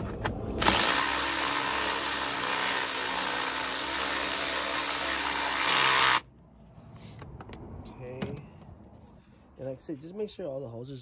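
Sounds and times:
power tool whining: 0.6 - 6.2.

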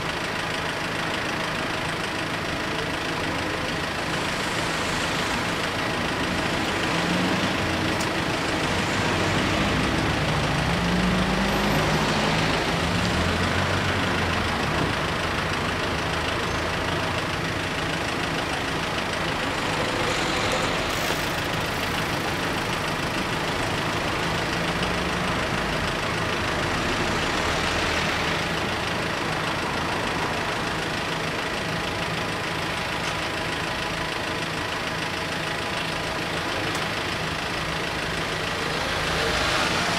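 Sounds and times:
car engines idling: 0.0 - 39.9.

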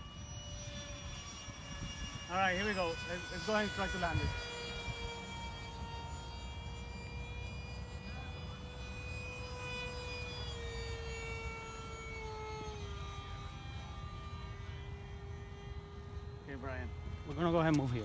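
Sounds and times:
electric ducted fan whine: 0.0 - 18.0.

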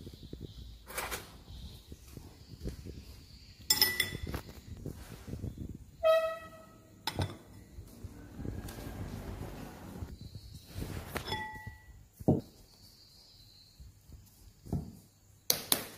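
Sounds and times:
dishes clinking: 3.7 - 4.3, 7.0 - 7.6, 11.2 - 11.9.

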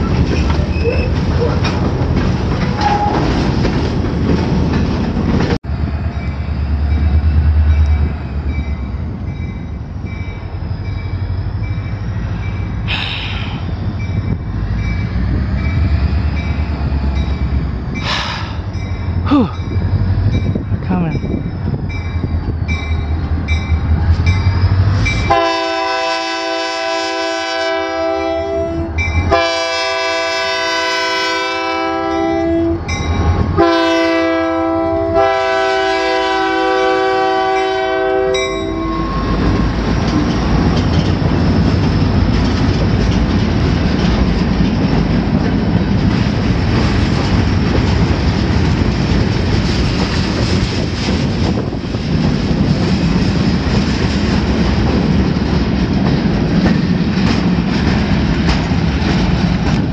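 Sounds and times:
wheel squeal: 0.0 - 1.7
diesel locomotive engine rumble: 0.0 - 59.9
freight cars rolling on rails: 0.0 - 59.9
locomotive horn blasts: 25.3 - 39.4.

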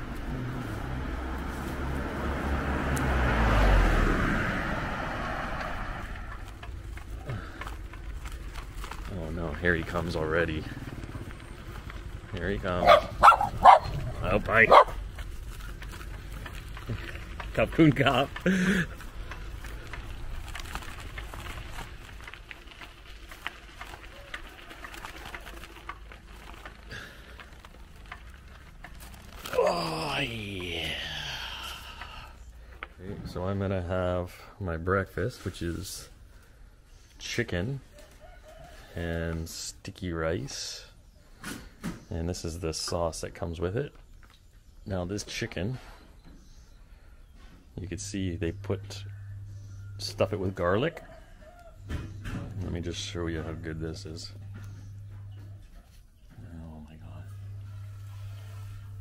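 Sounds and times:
car passing by: 0.0 - 7.6
bicycle tyres crunching on grit: 0.0 - 41.0, 41.6 - 59.0
bicycle clicks and rattles: 5.6 - 29.8.

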